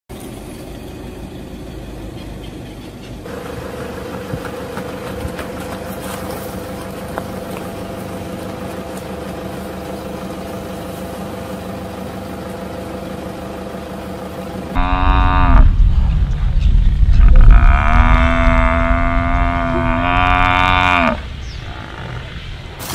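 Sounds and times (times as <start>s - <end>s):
vehicle engine idling: 0.1s - 15.0s
steady hum: 0.1s - 22.9s.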